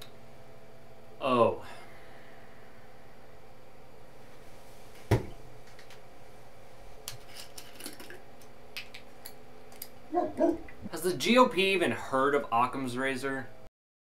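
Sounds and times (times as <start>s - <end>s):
steady low hum: 0.0s - 13.7s.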